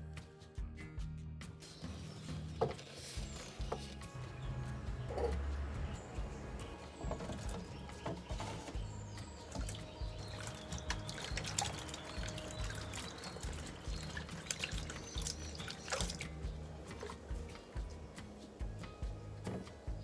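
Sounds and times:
background music: 0.0 - 20.0
water dripping: 5.0 - 18.6
water splashing in a basin: 5.1 - 18.1.

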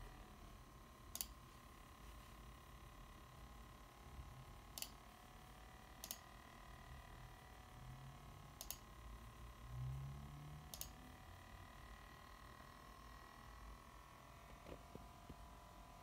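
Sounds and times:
sharp clicks: 1.1 - 1.4, 4.8 - 5.0, 6.0 - 6.2, 8.6 - 8.8, 10.7 - 11.0
laptop fans hissing faintly: 10.1 - 16.0.

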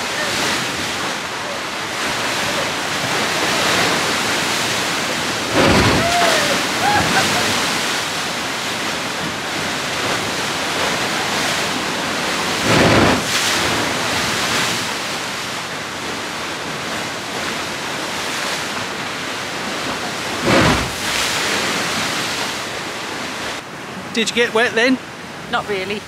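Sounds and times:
surf rushing into a gully: 0.0 - 26.0
wave thumping and splashing on rocks: 0.2 - 23.6.

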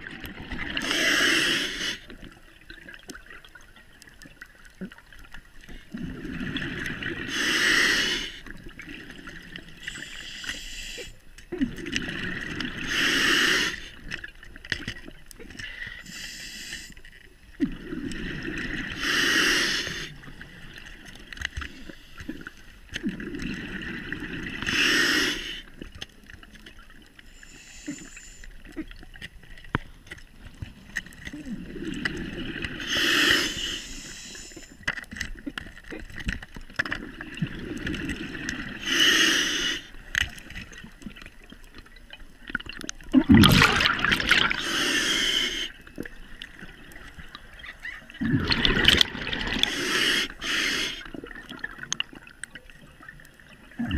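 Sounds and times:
diver breathing through regulator: 0.7 - 2.1, 6.1 - 8.5, 9.8 - 11.2, 12.4 - 14.0, 15.6 - 17.1, 18.4 - 20.3, 24.6 - 25.8, 27.2 - 28.6, 31.8 - 34.8, 38.6 - 40.4, 43.4 - 46.0, 48.4 - 51.2
bubbling exhalations: 42.6 - 52.3.

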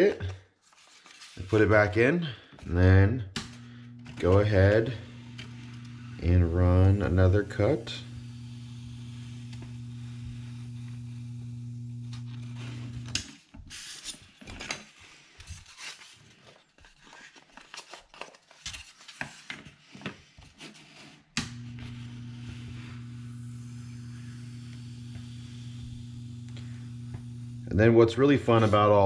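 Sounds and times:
foam cutter humming: 3.4 - 13.3, 21.4 - 29.0
foam rustling and scraping: 28.2 - 29.0.

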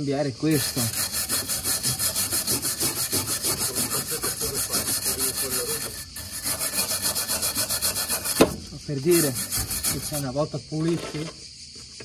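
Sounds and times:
hand scrubbing on metal: 0.5 - 11.3.

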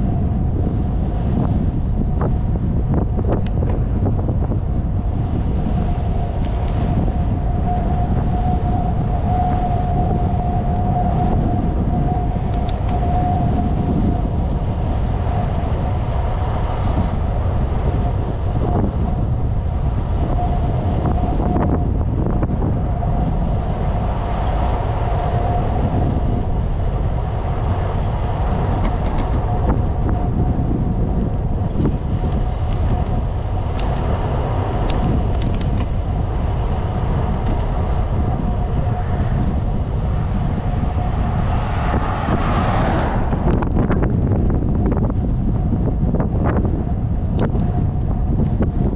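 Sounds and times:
low rumble of road noise: 0.0 - 48.9
thin whine: 0.0 - 48.9
wind noise on microphone: 0.0 - 48.9.

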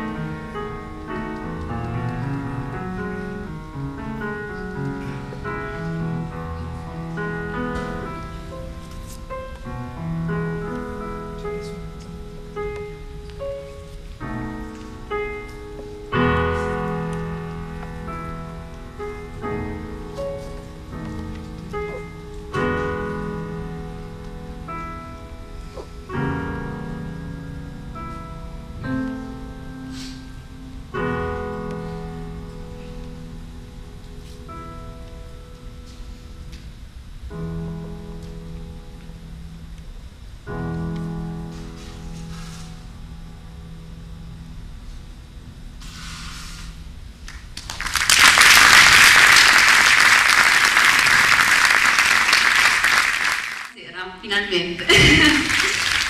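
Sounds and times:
piano playing slow chords: 0.0 - 53.8
audience applauding: 47.3 - 53.8, 54.9 - 56.0.

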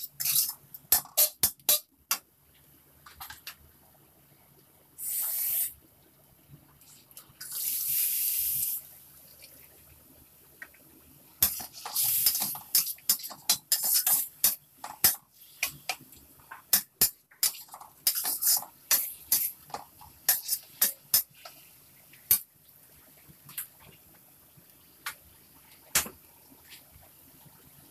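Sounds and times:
food sizzling: 0.0 - 1.8, 5.0 - 5.8, 6.8 - 9.8, 10.7 - 27.8
metal spatula scraping wok: 0.0 - 1.8
liquid hissing in hot wok: 5.0 - 5.8, 7.4 - 8.9, 11.4 - 15.9.

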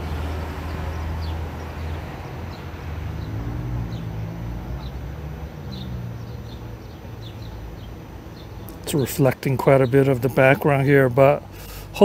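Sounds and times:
vehicle engine rumble: 0.0 - 12.0
high bird chirps: 4.8 - 11.1.

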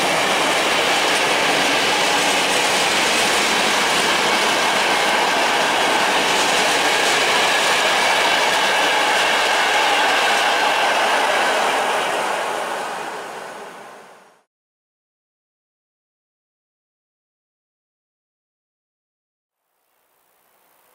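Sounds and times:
train wheels rumbling on rails: 0.0 - 14.5.

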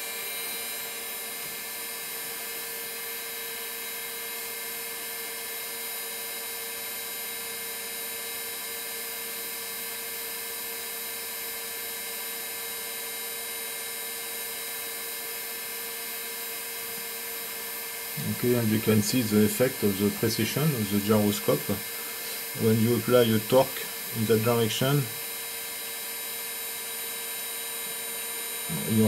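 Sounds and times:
gyroscope rotor whine: 18.0 - 25.4, 28.4 - 29.0.

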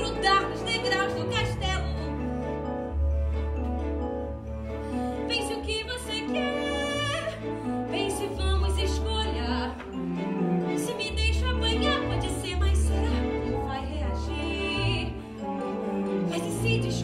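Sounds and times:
instrumental accompaniment: 0.0 - 17.0
woman singing with vibrato: 5.3 - 9.8.

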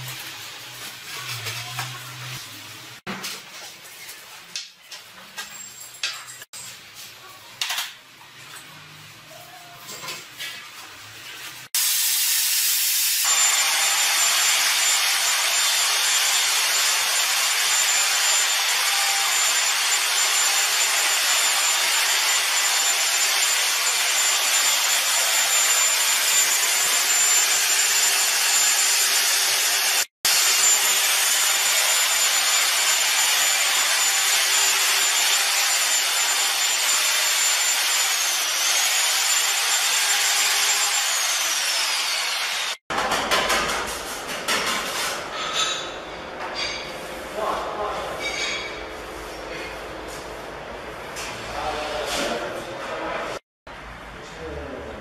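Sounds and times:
electric paddle mixer whining: 13.3 - 42.8.

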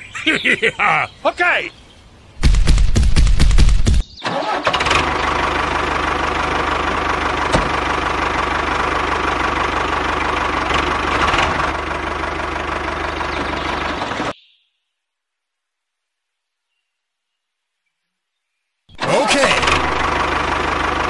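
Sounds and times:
diesel tractor engine running: 2.4 - 14.4, 19.0 - 21.0.

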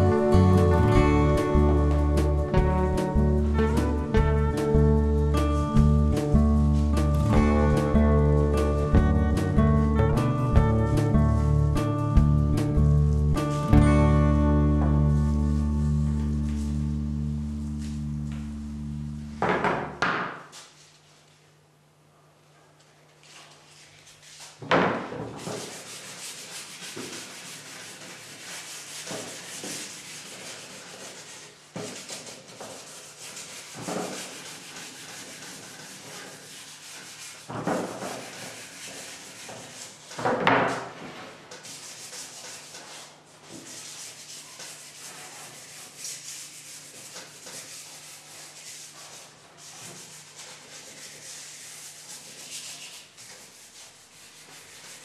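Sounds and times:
sandpaper rubbing on wood: 25.4 - 55.0.

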